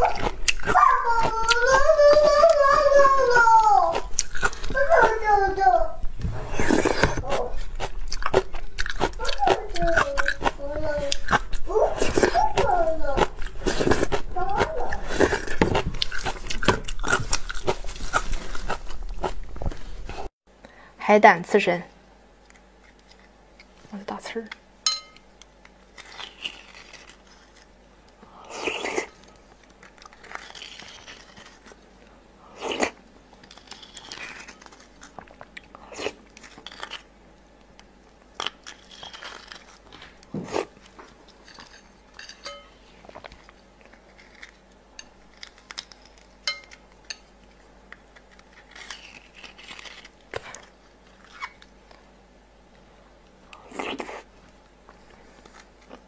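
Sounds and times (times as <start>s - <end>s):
chewing and mouth sounds: 0.0s - 2.5s, 3.8s - 5.2s, 6.2s - 20.3s, 25.4s - 41.8s
spoon scraping and tapping shell: 24.9s - 25.2s, 41.6s - 42.7s, 46.5s - 47.2s.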